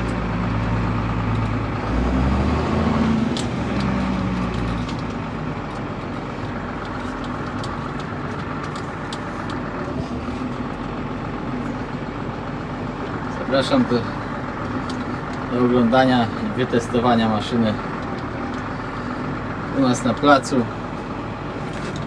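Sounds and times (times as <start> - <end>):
tractor diesel engine running: 0.0 - 22.0
light clicks and rattles: 3.3 - 9.7.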